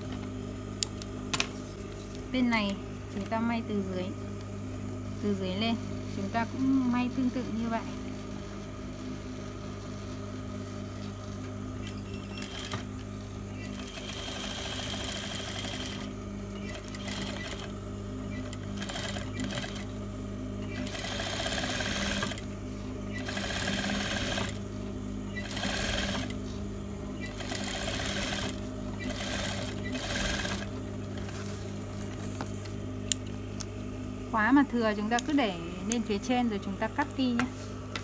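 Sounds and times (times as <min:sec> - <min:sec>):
low motor hum: 0:00.0 - 0:38.0
sewing machine stitching: 0:12.3 - 0:12.8, 0:13.6 - 0:17.7, 0:18.4 - 0:19.9, 0:20.7 - 0:22.4, 0:23.2 - 0:24.6, 0:25.4 - 0:26.3, 0:27.2 - 0:30.7.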